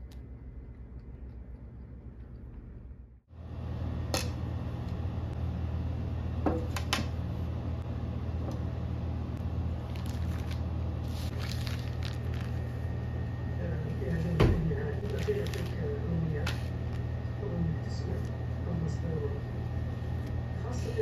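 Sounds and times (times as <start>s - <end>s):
steady low hum: 0.0s - 21.0s
plastic package crinkling: 9.8s - 12.8s, 15.0s - 17.1s.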